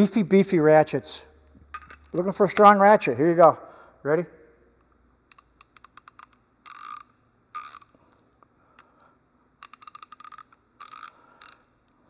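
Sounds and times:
ratchet clicking: 5.3s - 8.0s, 9.6s - 12.0s.

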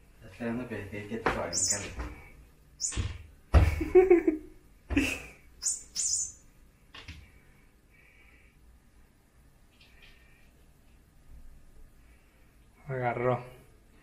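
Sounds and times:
toy mouse squeaking: 1.5s - 1.9s, 2.8s - 3.0s, 5.6s - 6.4s.

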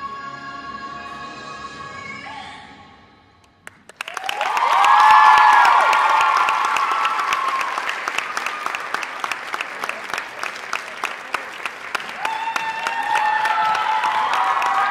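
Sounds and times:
audience applauding: 3.7s - 14.9s
crowd cheering: 4.0s - 14.9s.

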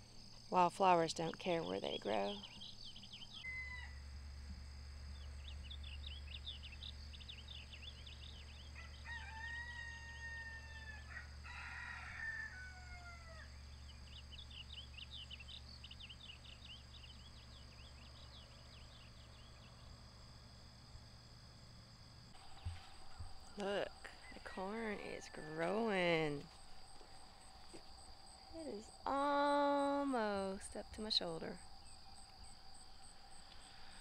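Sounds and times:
rooster crowing: 3.4s - 4.0s, 8.7s - 13.6s, 23.0s - 25.9s.

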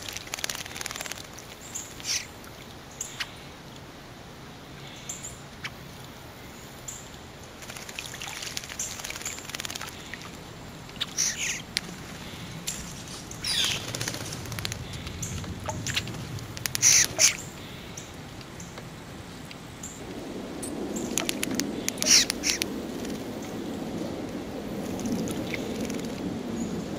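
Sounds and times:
wings fluttering: 0.0s - 2.3s, 7.6s - 17.8s, 20.0s - 26.9s
birds splashing in water: 0.0s - 3.6s, 5.6s - 18.7s, 19.4s - 23.8s.

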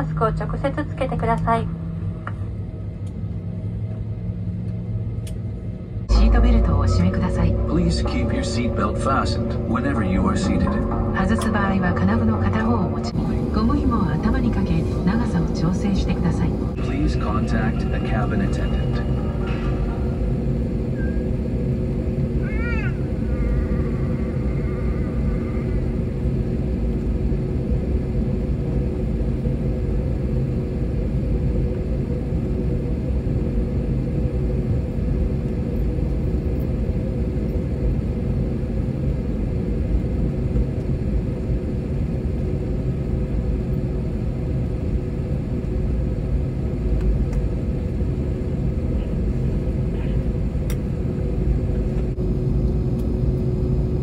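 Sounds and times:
aircraft cabin rumble and hum: 0.0s - 54.0s
brief high tone: 6.1s - 13.2s.

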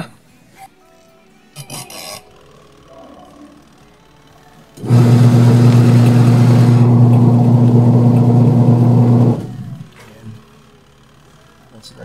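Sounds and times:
washing machine motor humming: 4.8s - 10.0s.

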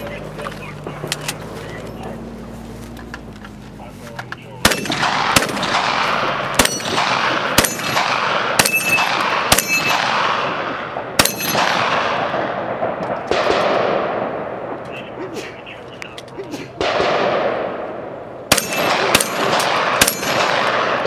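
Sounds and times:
gunshots with long echo: 4.6s - 15.7s, 16.7s - 21.0s.

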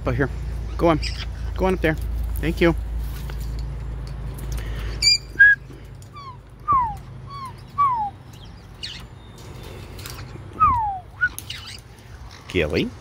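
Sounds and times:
parrot chirps: 5.0s - 9.1s, 10.2s - 12.4s.

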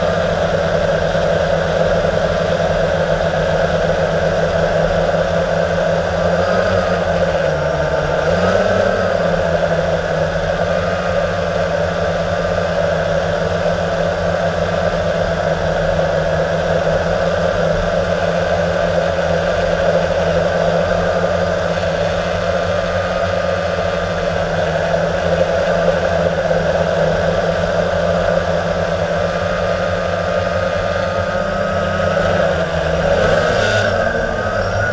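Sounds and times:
quadcopter motors whirring: 16.2s - 34.9s.

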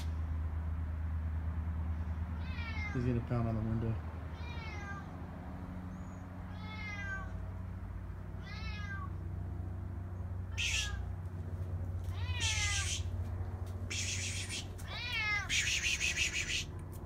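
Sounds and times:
cat meowing: 2.4s - 3.0s, 4.3s - 5.1s, 6.5s - 7.4s, 8.4s - 9.2s, 10.5s - 11.1s, 12.1s - 13.1s, 13.9s - 16.6s.

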